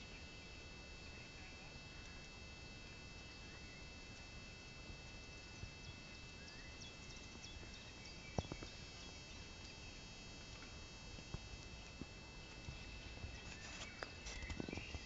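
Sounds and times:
faint steady hiss: 0:00.0 - 0:15.0
small birds chirping: 0:05.3 - 0:10.1, 0:12.5 - 0:15.0.

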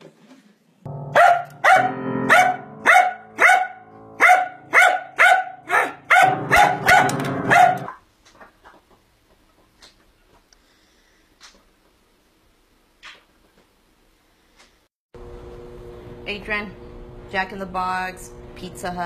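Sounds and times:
low piano notes: 0:00.9 - 0:04.7, 0:06.1 - 0:07.9
dog barking: 0:01.1 - 0:08.0.

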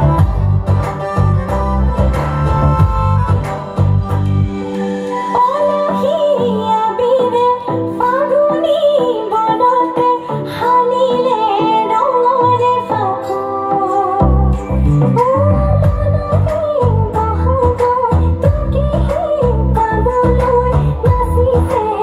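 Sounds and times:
low drum beat: 0:00.0 - 0:04.4
woman singing: 0:05.1 - 0:22.0.

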